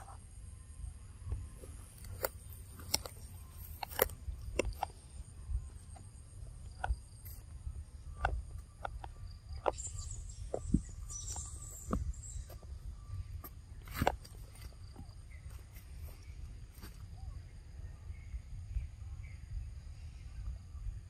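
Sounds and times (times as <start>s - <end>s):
insects droning: 0.0s - 21.0s
sharp clicks and crackles: 1.3s - 12.7s, 13.3s - 17.0s.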